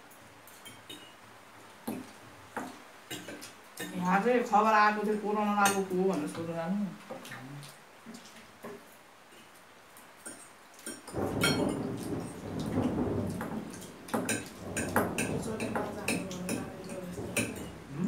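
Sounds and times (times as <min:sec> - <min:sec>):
thunder rumbling: 0:11.1 - 0:18.0.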